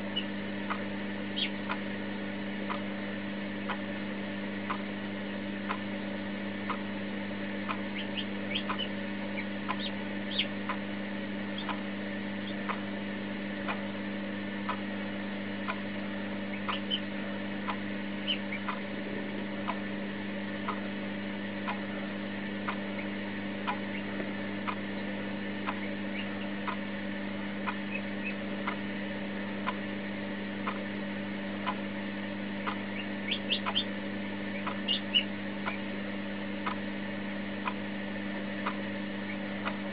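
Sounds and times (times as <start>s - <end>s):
chick peeping: 0.0s - 1.9s, 6.6s - 6.9s, 7.7s - 10.8s, 11.5s - 12.8s, 14.6s - 14.9s, 16.5s - 19.8s, 22.6s - 25.0s, 25.6s - 26.9s, 27.6s - 28.8s, 32.6s - 35.9s, 36.6s - 36.9s
steady low hum: 0.0s - 39.9s
regular ticking: 6.6s - 10.9s, 11.5s - 12.9s, 16.6s - 20.9s, 25.6s - 28.9s, 30.6s - 31.0s, 32.6s - 34.0s, 34.6s - 35.9s.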